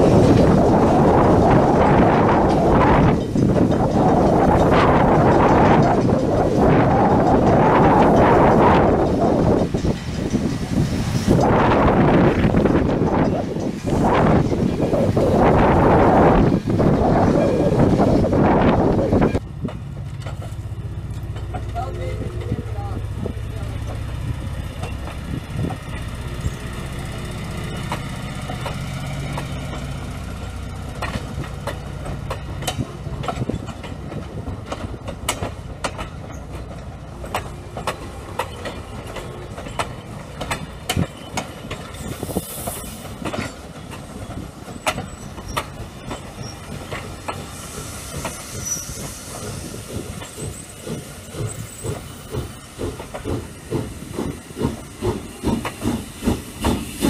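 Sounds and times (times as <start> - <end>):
train rumble: 0.0 - 57.0
train wheels clicking over rail joints: 0.0 - 57.0
faint steam hiss: 41.8 - 43.2.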